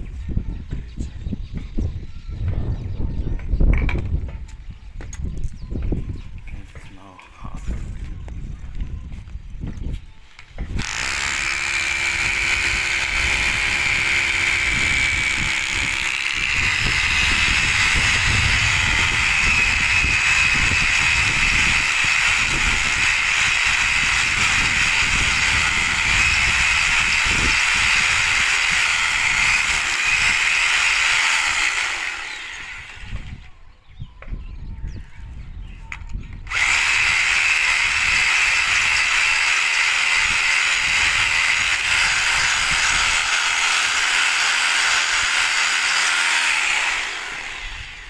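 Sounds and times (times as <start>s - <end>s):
electric power drill running: 10.8s - 33.4s, 36.4s - 48.0s.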